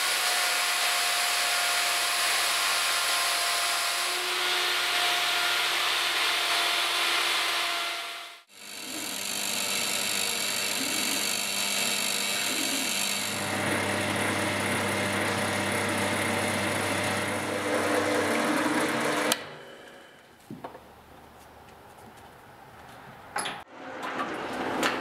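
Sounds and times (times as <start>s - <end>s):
drill press boring into wood: 7.3s - 19.4s.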